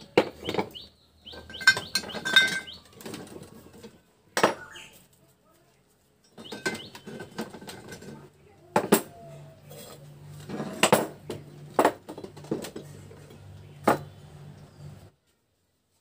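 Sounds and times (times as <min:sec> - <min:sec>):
metal tools clinking and knocking: 0:00.1 - 0:04.6, 0:06.2 - 0:12.9.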